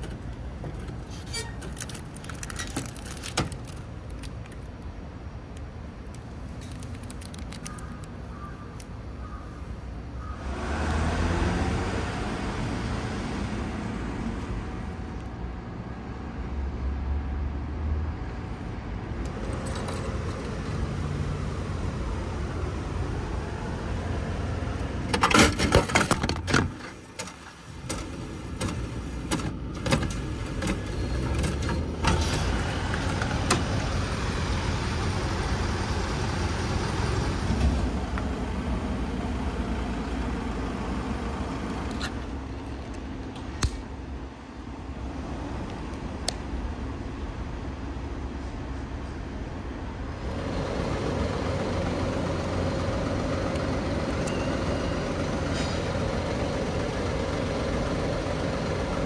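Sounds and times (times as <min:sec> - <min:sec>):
vending machine clatter and clicks: 0:00.0 - 0:04.8, 0:24.9 - 0:33.8
street traffic rumble: 0:00.0 - 0:59.0.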